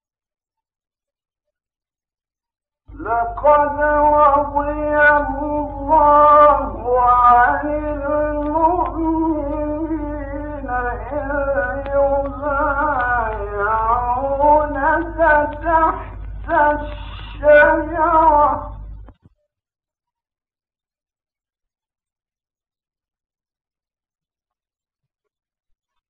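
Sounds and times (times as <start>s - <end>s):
man chanting recitation: 2.9s - 19.2s
low recording hum: 2.9s - 19.3s.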